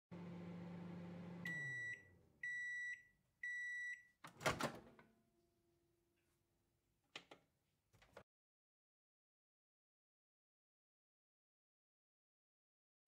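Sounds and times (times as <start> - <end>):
microwave oven hum: 0.1 - 4.0
microwave beeps: 1.1 - 4.2.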